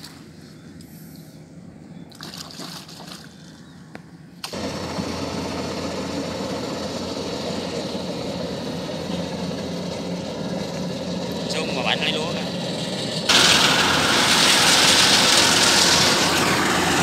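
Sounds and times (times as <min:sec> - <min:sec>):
combine harvester engine drone: 0:03.6 - 0:17.0.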